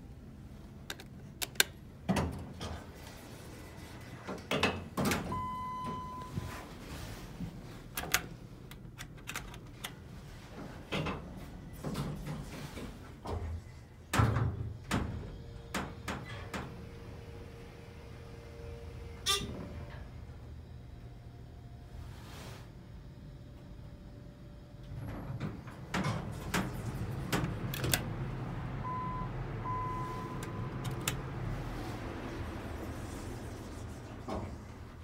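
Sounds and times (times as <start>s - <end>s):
elevator doors opening and closing: 1.4s - 20.4s, 24.8s - 32.9s
elevator low hum: 5.1s - 35.0s.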